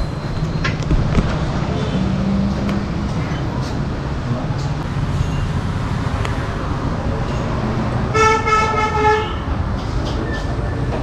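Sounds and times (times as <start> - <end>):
street traffic rumble: 0.0 - 11.0
vehicle horn toot: 8.1 - 9.5.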